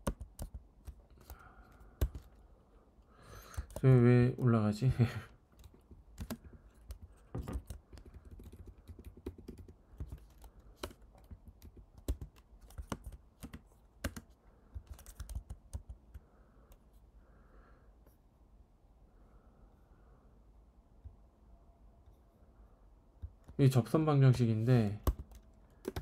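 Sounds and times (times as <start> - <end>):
typing on computer keyboard: 0.0 - 2.4, 3.5 - 3.8, 5.5 - 16.2, 25.0 - 26.0.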